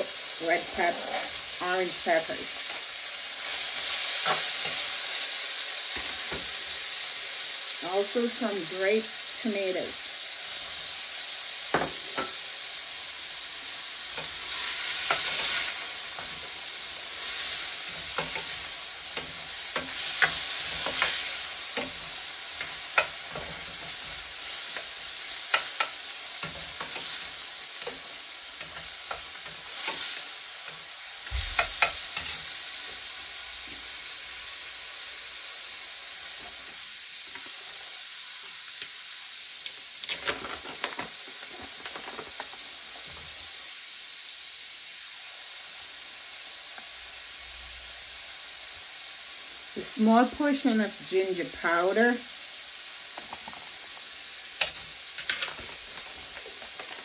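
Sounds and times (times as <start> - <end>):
vegetables sizzling in oil: 0.0 - 57.0
spatula clacking and scraping pan: 3.4 - 5.0, 14.1 - 32.6.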